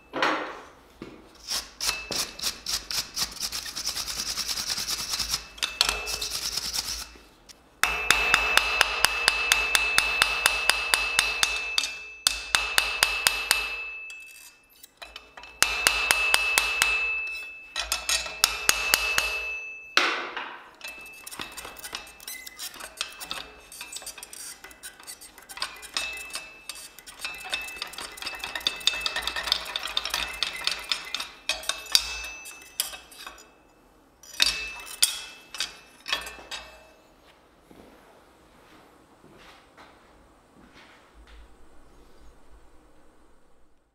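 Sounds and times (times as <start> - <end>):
wire brush scrubbing metal: 1.4 - 19.6, 20.8 - 33.4
hammer ringing on anvil: 5.2 - 6.3, 7.8 - 37.1.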